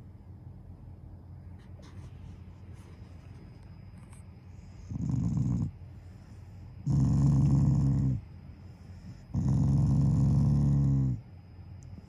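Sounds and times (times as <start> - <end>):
dog growling: 4.8 - 5.8, 6.8 - 8.3, 9.1 - 11.3.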